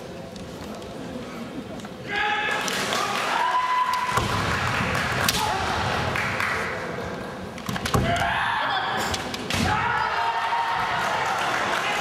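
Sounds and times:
people shouting: 8.0s - 11.9s.

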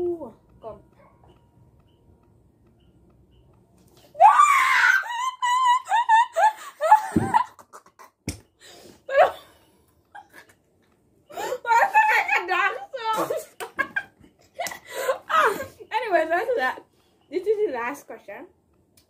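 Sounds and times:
girls laughing: 4.2s - 8.2s, 10.1s - 10.6s, 11.4s - 15.9s.

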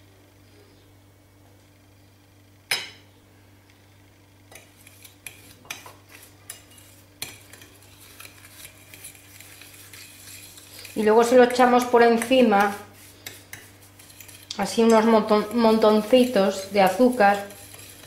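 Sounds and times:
fork scraping on ceramic plate: 4.6s - 18.0s.

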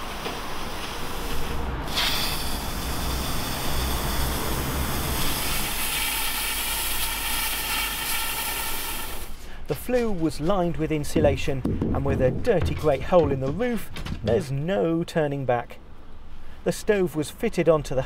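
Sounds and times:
plasma cutter hissing: 0.0s - 9.4s.

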